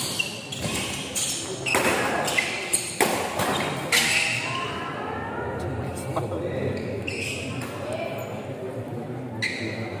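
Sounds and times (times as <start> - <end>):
spectators' voices: 0.8 - 10.0
racket hitting shuttlecock: 1.7 - 4.2.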